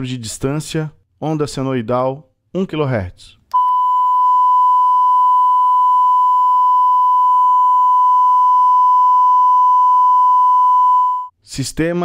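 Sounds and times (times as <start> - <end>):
sine-wave test tone: 3.5 - 11.3.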